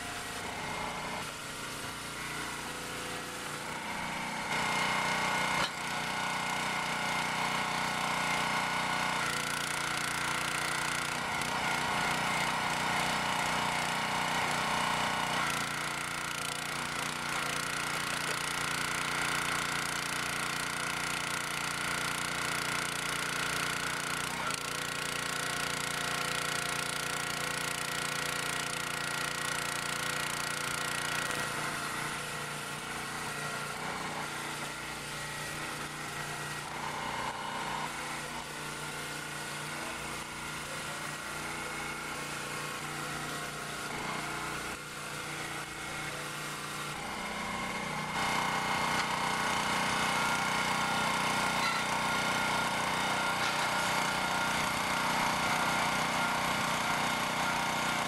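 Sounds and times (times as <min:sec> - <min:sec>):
petrol engine running: 0:28.7 - 0:58.0.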